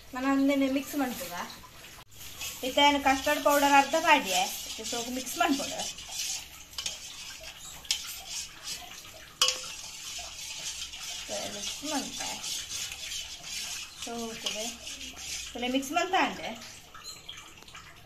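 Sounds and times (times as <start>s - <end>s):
metal spoon stirring in pot: 2.1s - 17.2s
spoon clinking against pot: 6.7s - 10.2s.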